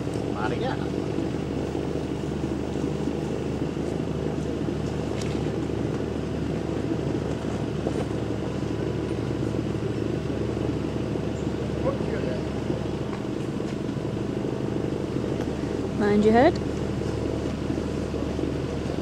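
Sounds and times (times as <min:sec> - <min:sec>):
boat engine idling: 0:00.0 - 0:19.0.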